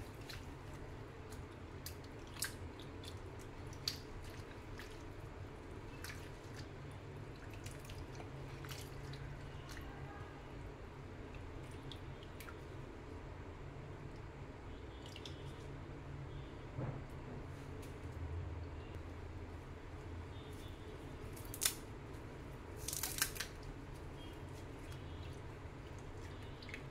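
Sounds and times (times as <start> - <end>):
water splashing and dripping: 0.0 - 10.0, 11.2 - 12.8, 14.9 - 15.7, 24.8 - 26.9
hand swishing leaves in water: 0.0 - 10.2.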